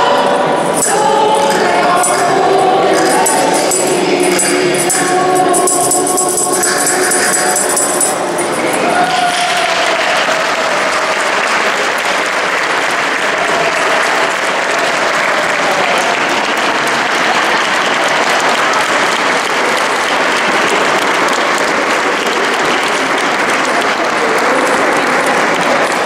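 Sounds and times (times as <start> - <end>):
choir singing: 0.0 - 11.3
audience applauding: 0.8 - 26.0.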